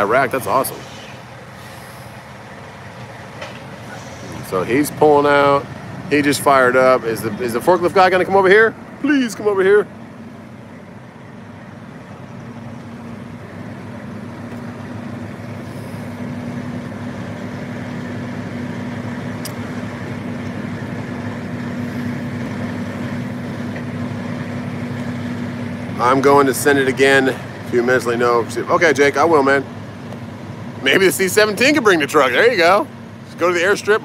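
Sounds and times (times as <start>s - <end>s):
diesel truck engine running: 0.0s - 34.0s.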